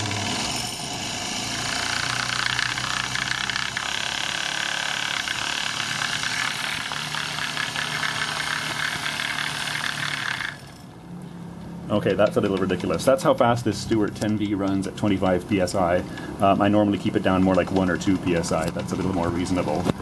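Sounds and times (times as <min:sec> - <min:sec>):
steam engine running: 0:00.0 - 0:10.8.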